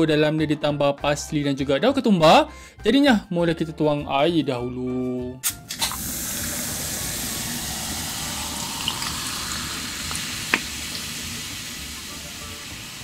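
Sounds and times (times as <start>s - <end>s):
liquid pouring: 5.6s - 13.0s.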